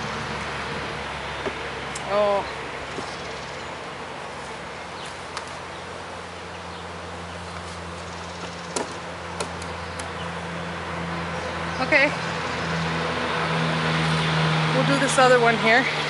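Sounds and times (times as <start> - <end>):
knocks and clicks of wooden hive: 8.4 - 10.1.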